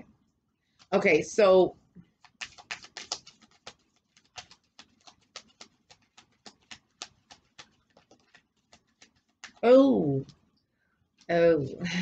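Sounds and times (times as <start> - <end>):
cards being shuffled: 2.1 - 10.4.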